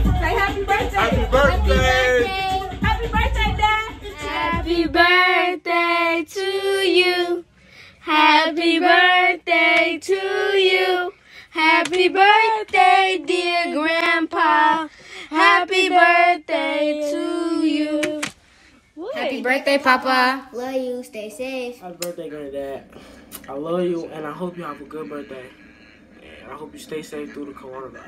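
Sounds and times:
girl singing: 1.7 - 7.4, 8.0 - 18.3.

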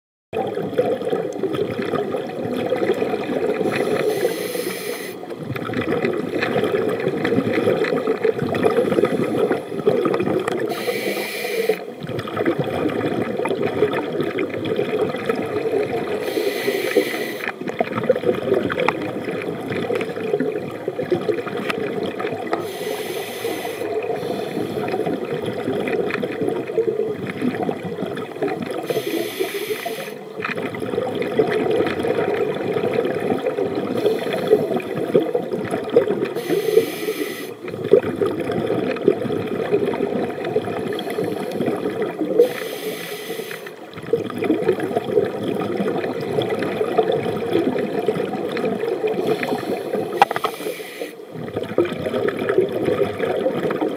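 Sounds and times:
underwater wash of noise: 0.4 - 53.9
scuba regulator breathing: 3.6 - 5.4, 10.6 - 12.0, 16.1 - 17.7, 22.5 - 25.2, 28.8 - 30.4, 33.9 - 35.2, 36.3 - 37.7, 40.8 - 43.9, 49.0 - 51.3.

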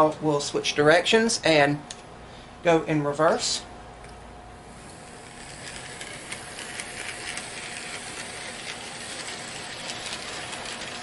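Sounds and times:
model train motor whirring: 4.7 - 11.0.

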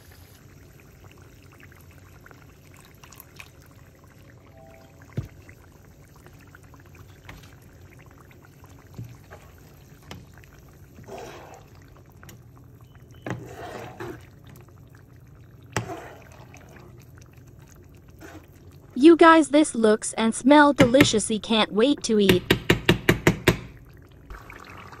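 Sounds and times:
liquid sloshing in a pan: 4.8 - 19.0.

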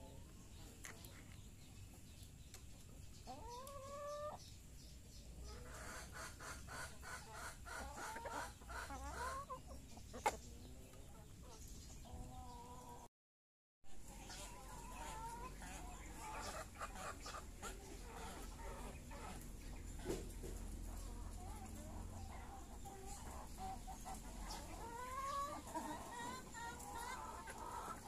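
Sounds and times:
hens clucking and calling: 0.0 - 4.5, 5.3 - 13.1, 14.0 - 28.0.

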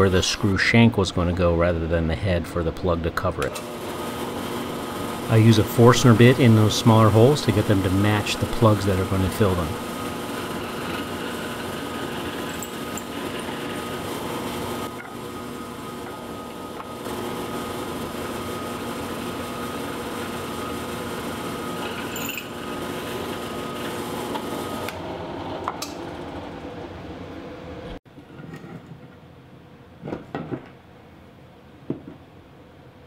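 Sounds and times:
drill press boring wood: 3.5 - 25.0.

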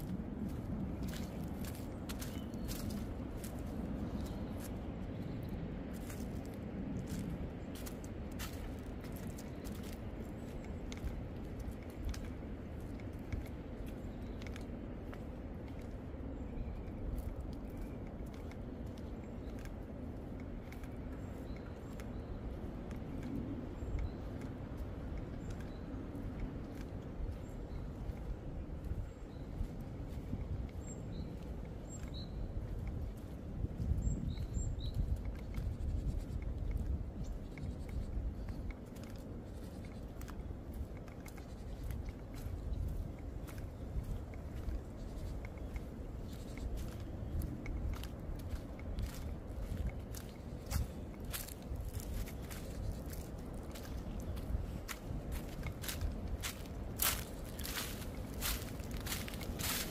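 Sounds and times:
footsteps on leaf litter: 0.0 - 4.8, 5.9 - 12.1, 48.4 - 59.9
dry leaves and twigs crackling: 0.0 - 59.9
strong wind through forest: 0.0 - 59.9.

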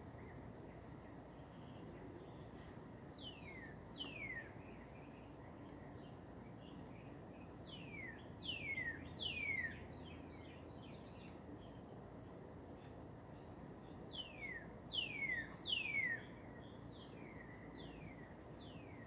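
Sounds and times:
low background noise: 0.0 - 19.0
faint high ticks: 4.0 - 4.2.

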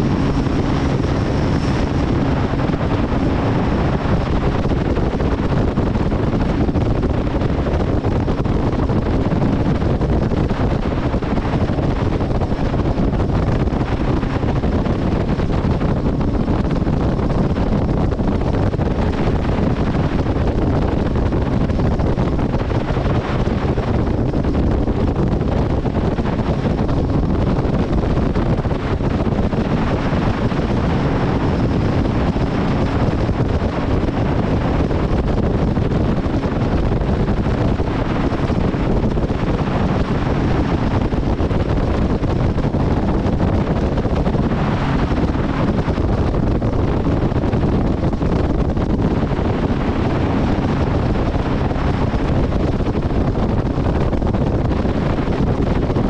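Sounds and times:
outboard motor running: 0.0 - 21.0
hull moving through water: 0.0 - 56.0
wind rushing over microphone: 0.0 - 56.0.

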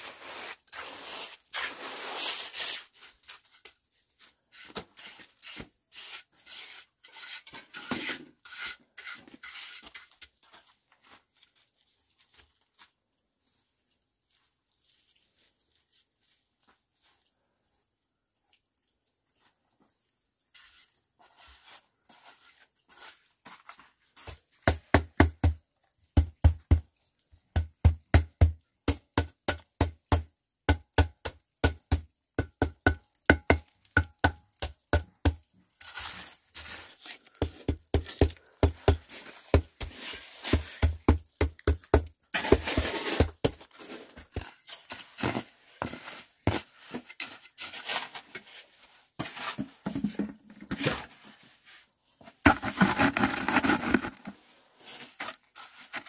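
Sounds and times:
stick tamping wet concrete: 26.2 - 26.9, 27.5 - 48.2.

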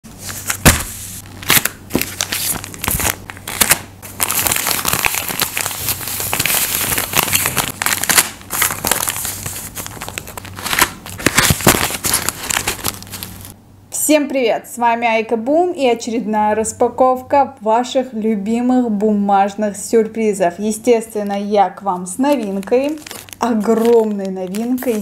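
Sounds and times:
paper rustling and crinkling: 0.2 - 13.6, 22.2 - 25.0.

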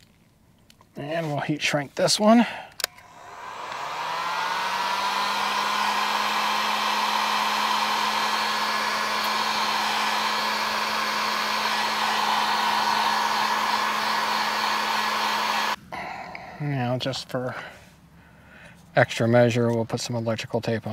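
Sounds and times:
heat gun running: 2.8 - 15.8.

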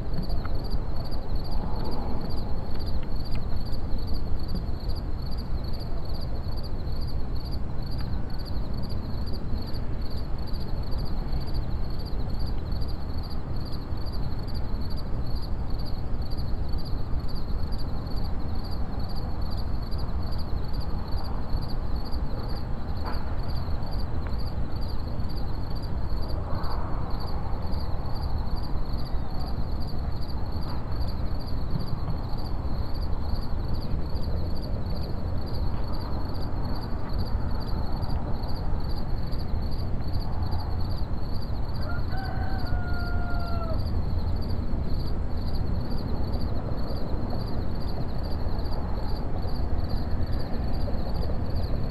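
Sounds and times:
night insects chirping: 0.0 - 51.9.

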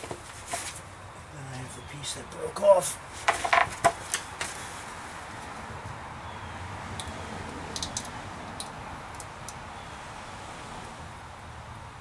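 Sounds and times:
steady background hiss: 0.0 - 7.0.

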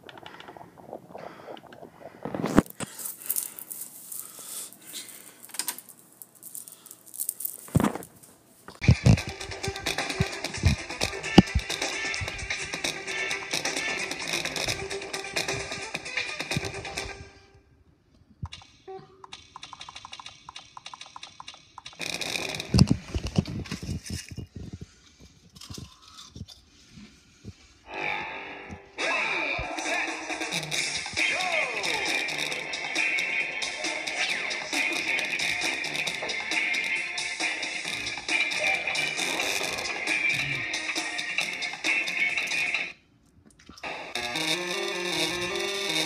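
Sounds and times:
rustling handling noise: 1.8 - 12.4, 22.7 - 27.8.

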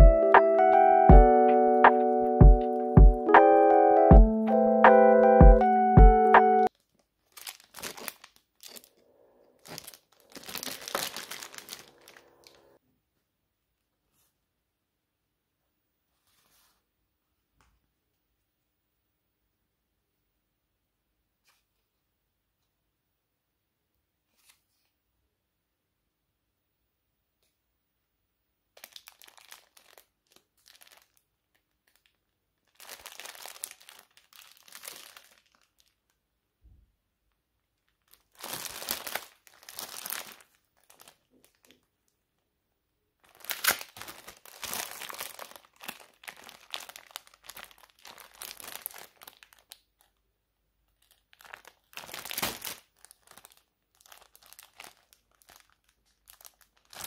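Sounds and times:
crinkling and rustling: 6.6 - 12.8, 16.1 - 16.9, 28.8 - 36.2, 37.3 - 42.2, 43.2 - 50.2, 50.9 - 57.0.

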